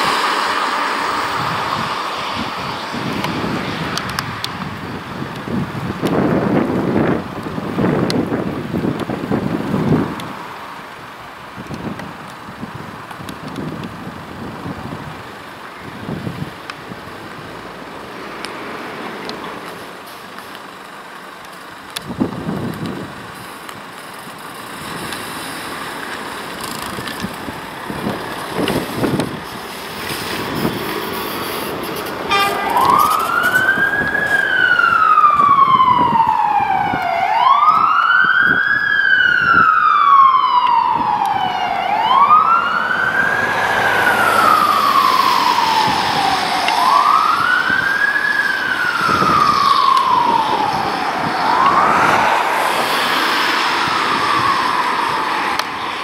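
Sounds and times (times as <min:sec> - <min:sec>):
fire engine siren wailing: 0:00.0 - 0:10.5, 0:27.0 - 0:56.0
fire engine engine: 0:00.0 - 0:56.0.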